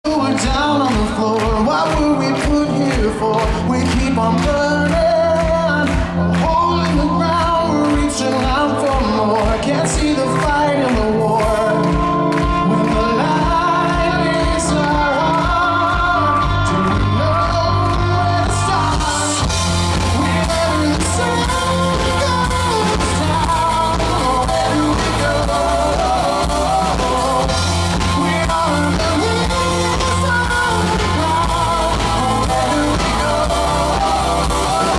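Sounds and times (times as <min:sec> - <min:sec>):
man singing: 0:00.0 - 0:34.9
live rock band playing: 0:00.1 - 0:34.9.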